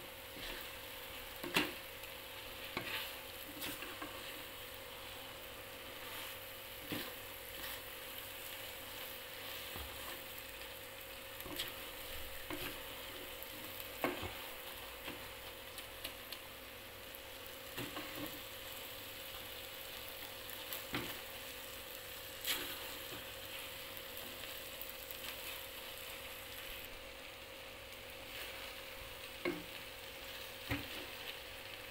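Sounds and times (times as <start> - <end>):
food sizzling in a wok: 0.0 - 31.9.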